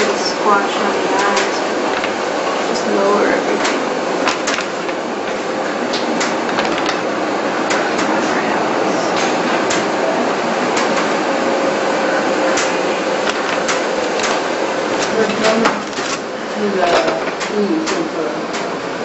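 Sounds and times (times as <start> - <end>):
room noise hiss: 0.0 - 19.0
paper sheets flipping and snapping: 1.2 - 2.2, 3.6 - 5.0, 5.9 - 7.0, 12.5 - 16.2.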